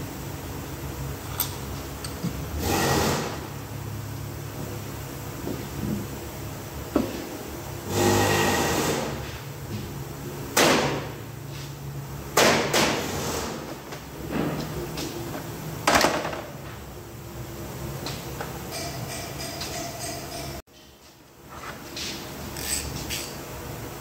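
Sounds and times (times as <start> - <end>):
hand tools knocking on metal: 18.6 - 20.6.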